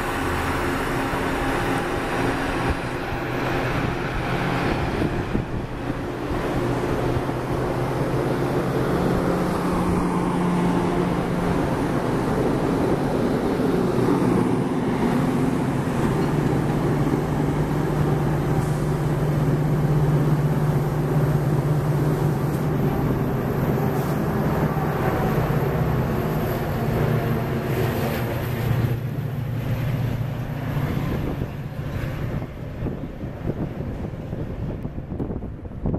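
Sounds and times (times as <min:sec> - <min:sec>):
train wheels clattering on rails: 0:11.4 - 0:20.8.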